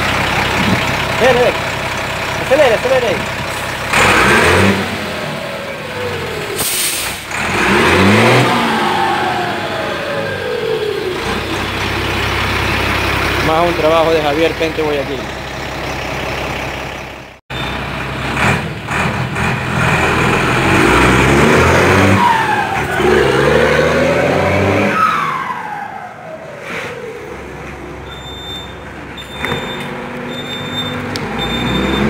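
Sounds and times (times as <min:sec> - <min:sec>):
diesel bus engine revving: 0:00.0 - 0:32.0
turbocharger whistle: 0:28.0 - 0:32.0.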